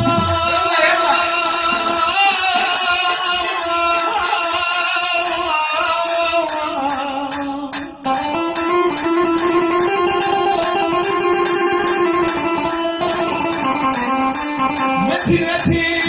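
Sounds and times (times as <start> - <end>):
man singing into microphone: 0.0 - 8.4, 14.9 - 16.0
keyboard accompaniment: 0.0 - 16.0.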